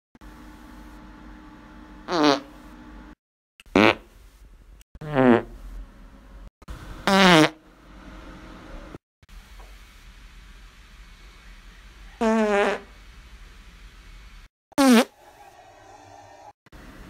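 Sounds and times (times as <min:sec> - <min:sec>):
farts sliding down in pitch: 0:02.1 - 0:02.5, 0:03.7 - 0:04.0, 0:05.0 - 0:05.6, 0:07.1 - 0:07.6, 0:12.2 - 0:12.8, 0:14.8 - 0:15.2.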